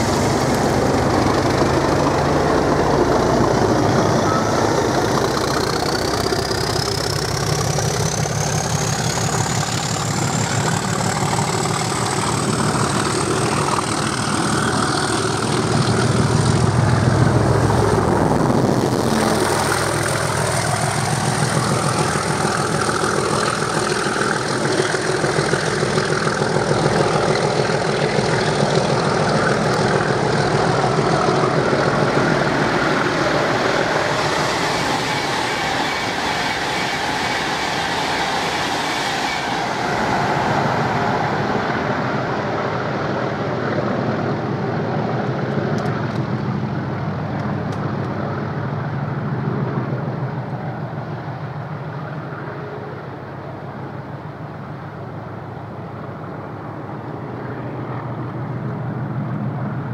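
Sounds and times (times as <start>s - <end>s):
diesel locomotive engines rumbling: 0.0s - 59.9s
turbocharger whistle rising: 3.6s - 42.5s.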